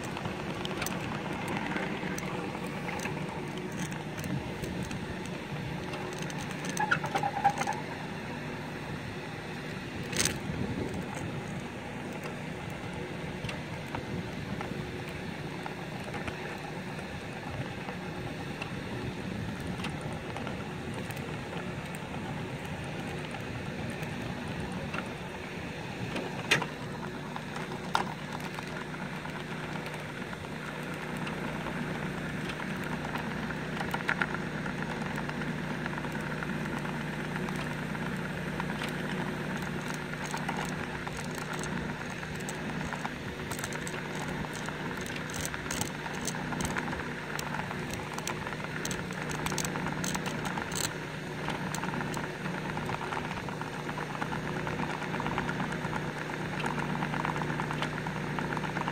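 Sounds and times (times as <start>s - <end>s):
steady engine hum: 0.0s - 58.9s
sharp clicks and taps: 38.7s - 52.3s.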